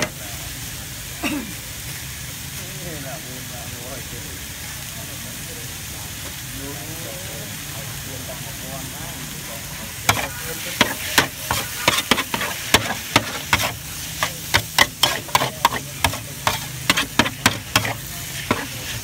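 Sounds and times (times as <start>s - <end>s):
food sizzling in a pan: 0.0s - 19.0s
utensil striking a pan: 10.1s - 19.0s.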